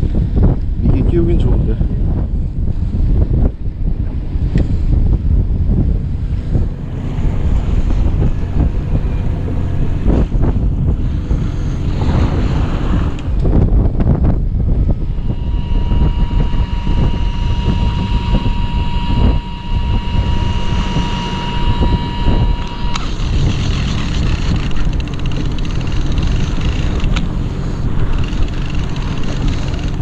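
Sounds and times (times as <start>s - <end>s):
boat engine rumbling: 0.0s - 30.0s
wind: 0.0s - 30.0s
sea noise: 2.0s - 30.0s
fishing reel motor whining: 14.9s - 30.0s.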